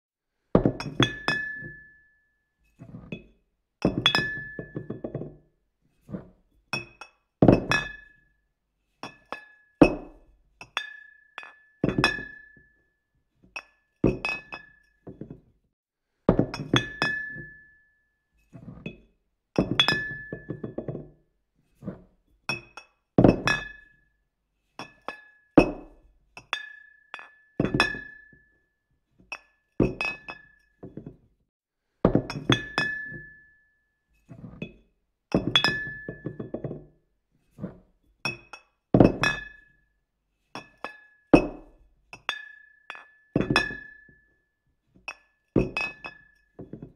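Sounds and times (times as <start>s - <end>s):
glass clinking: 0.7s - 2.0s, 3.9s - 5.4s, 6.8s - 8.1s, 9.0s - 12.7s, 13.6s - 15.4s, 16.4s - 17.8s, 19.6s - 21.0s, 22.5s - 23.8s, 24.8s - 28.4s, 29.3s - 31.1s, 32.1s - 33.5s, 35.4s - 36.8s, 38.3s - 39.6s, 40.6s - 44.2s, 45.1s - 46.9s.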